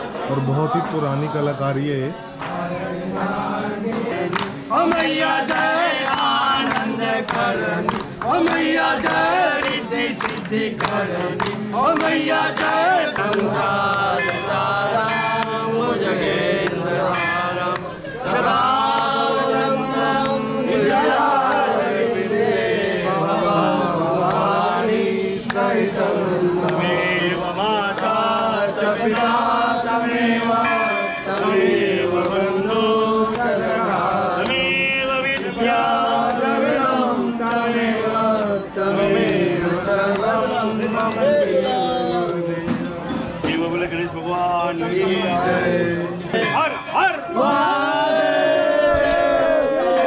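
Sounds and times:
voices chanting to music: 0.0s - 50.0s
sharp percussive strikes: 38.4s - 48.1s.

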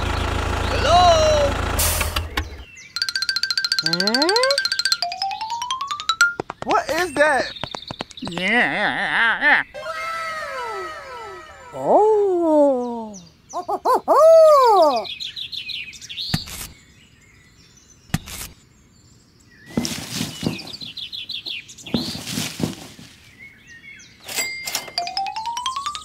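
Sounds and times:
bird-like chirping: 2.3s - 12.0s, 12.8s - 26.0s
sharp knocks: 19.8s - 20.9s, 21.9s - 23.0s.

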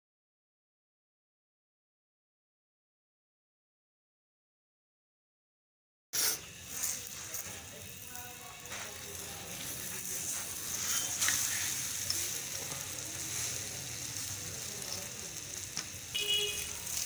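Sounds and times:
frying sizzle on griddle: 6.2s - 17.0s.

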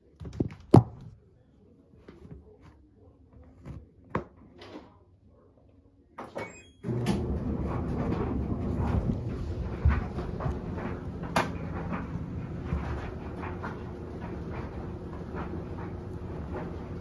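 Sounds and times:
washing machine knocks and clunks: 6.2s - 17.0s.

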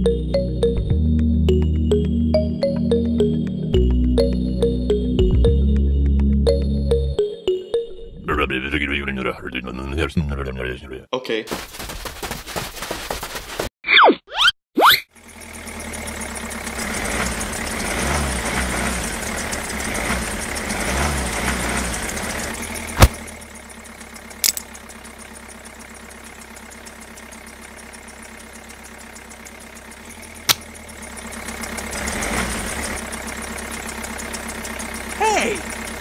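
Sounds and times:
tractor engine idling and revving: 0.0s - 7.3s, 15.1s - 36.0s.

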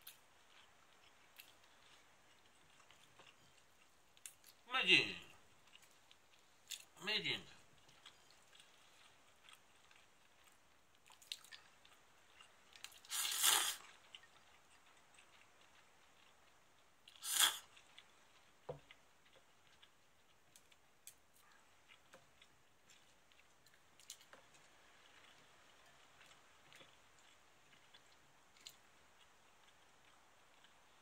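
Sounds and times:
noodles slurped: 12.9s - 13.9s, 17.1s - 17.9s.

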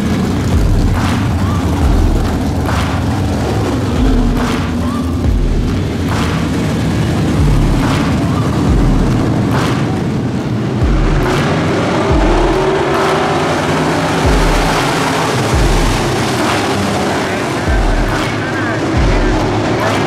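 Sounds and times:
race car engines revving: 0.0s - 20.0s
deep low boom: 0.3s - 9.6s, 10.8s - 12.8s.

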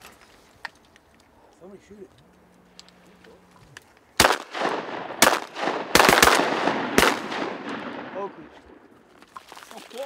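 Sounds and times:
shotgun shots echoing: 4.2s - 8.9s.

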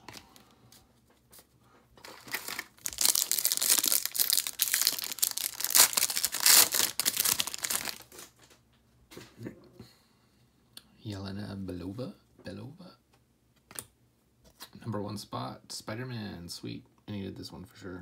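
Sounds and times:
foil wrapper tearing and crinkling: 2.0s - 8.3s.

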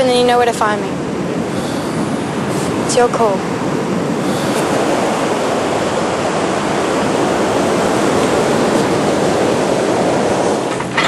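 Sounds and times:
ocean waves washing on beach: 0.0s - 11.0s.

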